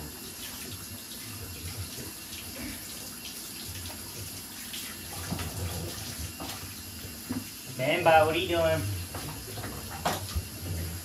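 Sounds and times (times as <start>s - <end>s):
tap running into bathtub: 3.3s - 11.0s.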